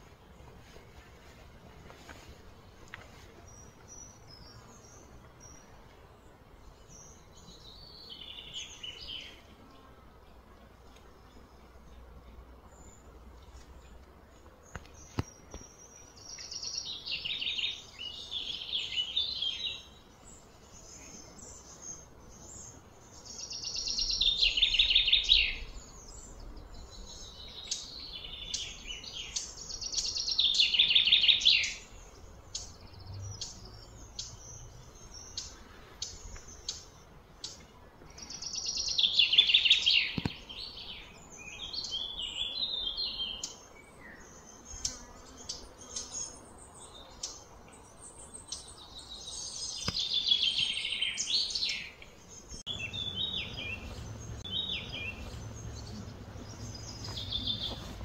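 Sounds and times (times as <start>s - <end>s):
bird singing rapid pulses: 14.6s - 58.0s.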